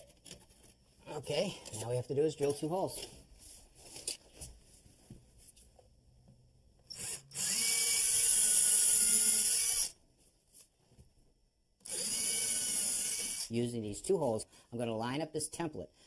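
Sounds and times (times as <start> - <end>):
cordless drill boring into wall: 6.9 - 10.0, 11.8 - 13.5.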